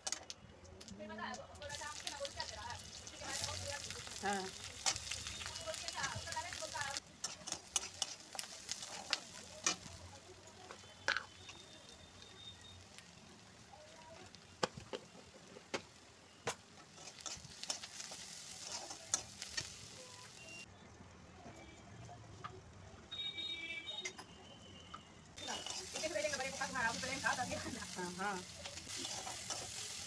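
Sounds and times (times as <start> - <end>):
onions sizzling in hot oil: 0.8 - 20.7, 25.4 - 30.0
metal spatula scraping a pan: 7.2 - 9.8, 16.8 - 19.7, 25.4 - 27.9, 28.8 - 30.0.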